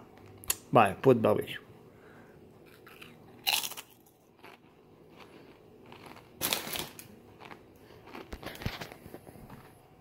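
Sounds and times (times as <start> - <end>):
tortilla chip crunching: 2.6 - 9.6.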